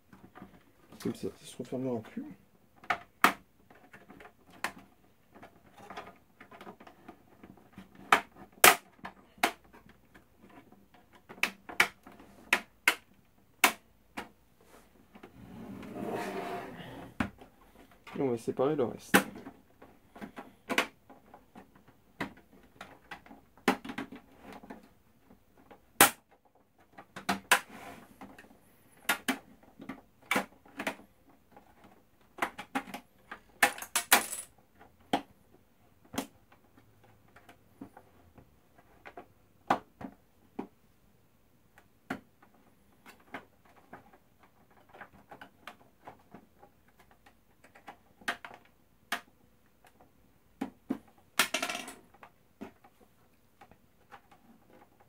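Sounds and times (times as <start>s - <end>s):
plastic case scraping: 14.7s - 18.0s.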